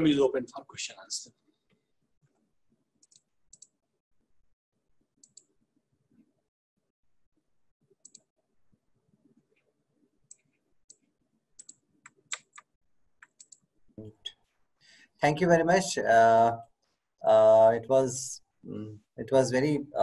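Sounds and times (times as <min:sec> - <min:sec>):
faint irregular clicks: 0:01.3 - 0:03.8, 0:05.2 - 0:06.3, 0:07.9 - 0:08.4, 0:09.1 - 0:14.6.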